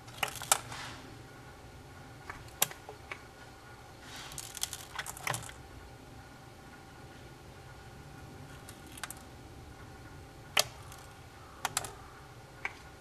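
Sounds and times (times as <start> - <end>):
sharp clicks: 10.5 - 12.0.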